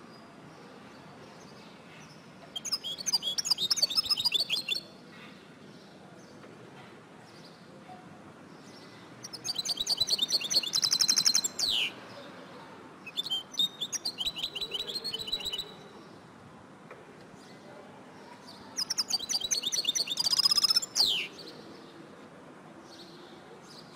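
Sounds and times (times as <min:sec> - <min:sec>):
bird twittering chirps: 0:02.6 - 0:04.8, 0:09.2 - 0:11.9, 0:13.1 - 0:15.7, 0:18.8 - 0:21.3.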